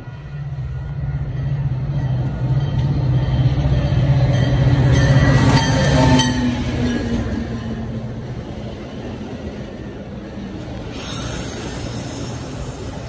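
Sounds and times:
diesel locomotive engine drone: 0:00.0 - 0:13.0
train coaches rolling rumble: 0:00.0 - 0:13.0.

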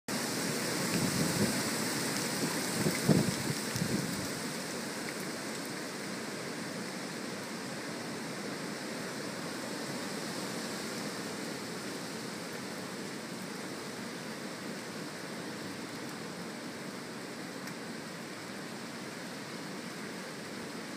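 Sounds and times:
wind and rain rushing: 0:00.1 - 0:20.9
gusts buffeting microphone: 0:00.8 - 0:04.4.

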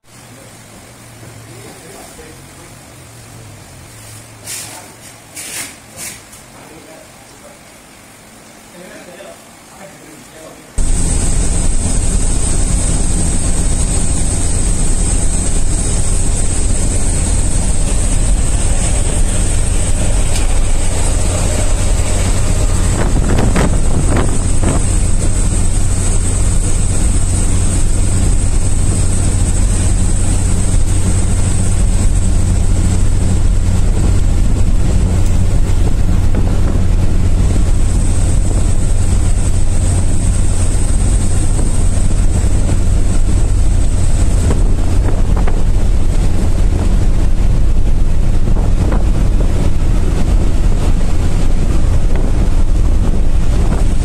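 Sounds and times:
engine and road noise in cab: 0:00.0 - 0:06.6, 0:10.8 - 0:54.0.

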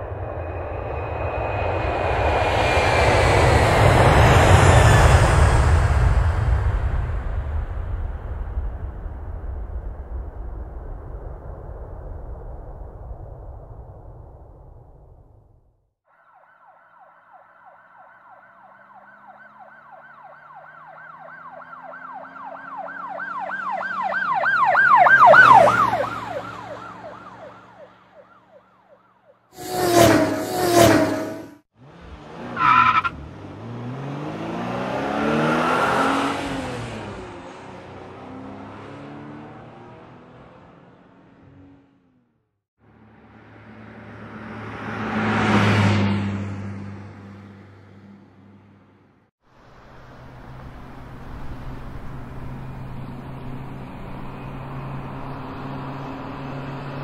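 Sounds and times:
emergency siren wailing: 0:16.1 - 0:30.8
vehicle passing by: 0:18.5 - 0:28.3, 0:29.6 - 0:42.1, 0:42.8 - 0:57.0.

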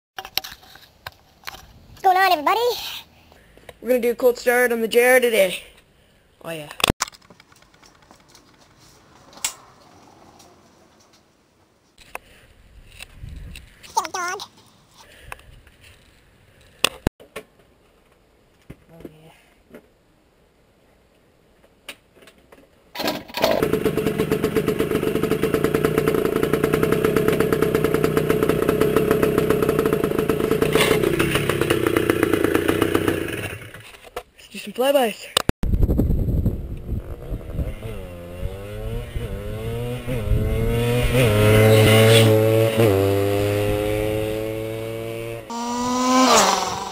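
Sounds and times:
two-stroke engine starting and running: 0:23.0 - 0:34.0, 0:36.9 - 0:46.9
dirt bike accelerating past: 0:23.6 - 0:33.8, 0:36.8 - 0:46.9.

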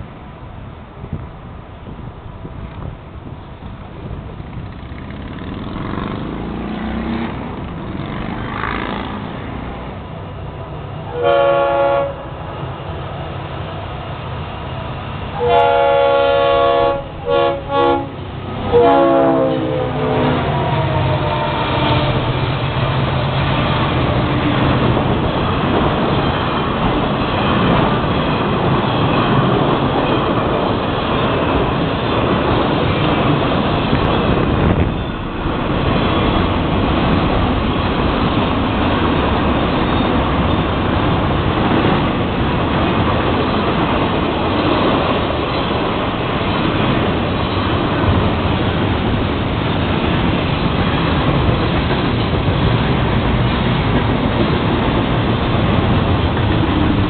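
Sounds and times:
freight train rumbling past: 0:00.0 - 0:57.0
locomotive air horn blasts: 0:11.1 - 0:12.4, 0:15.4 - 0:22.3.

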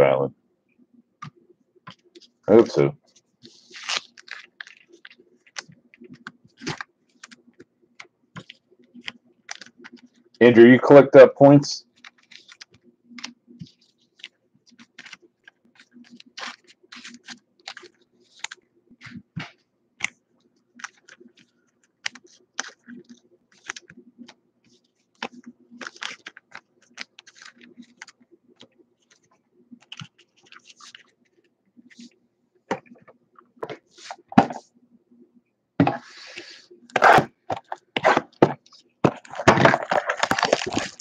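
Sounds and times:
faint steady hum: 0:00.0 - 0:41.0
cards clicking and tapping: 0:25.2 - 0:31.1.

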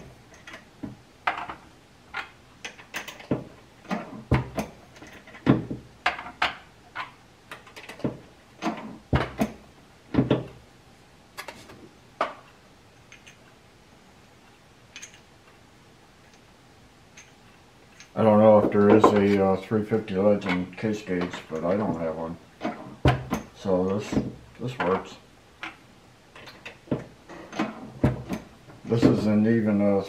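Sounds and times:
reloading press metal clicks: 0:14.9 - 0:15.3.

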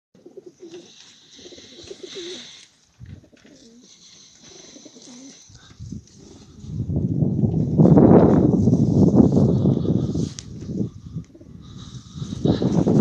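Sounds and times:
pigeons cooing: 0:00.2 - 0:06.7.

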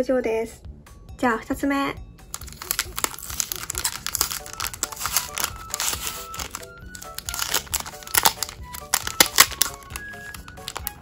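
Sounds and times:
light background music: 0:00.0 - 0:11.0
plastic packaging crinkling and tearing: 0:02.3 - 0:11.0.

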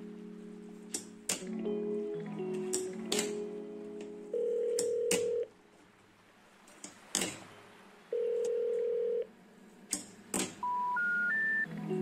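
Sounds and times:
long electronic beeps: 0:10.6 - 0:11.7.

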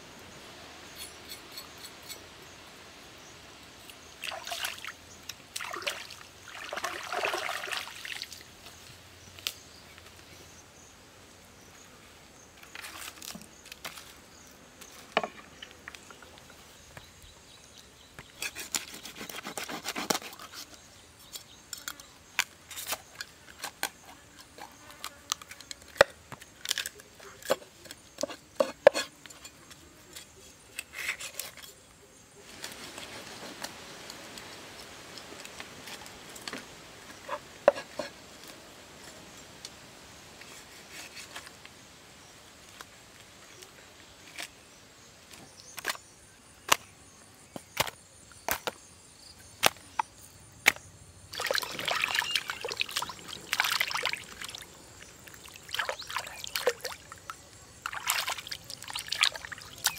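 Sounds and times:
water splashing and sloshing: 0:04.2 - 0:08.7, 0:51.3 - 0:59.9
knife scraping on wooden board: 0:18.4 - 0:20.7, 0:28.2 - 0:29.6.

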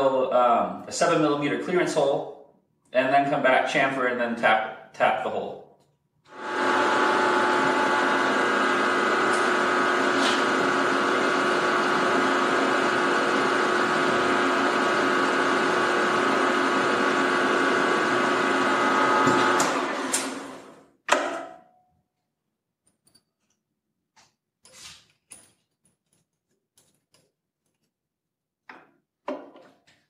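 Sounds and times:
milling machine drilling steel: 0:06.3 - 0:20.7.

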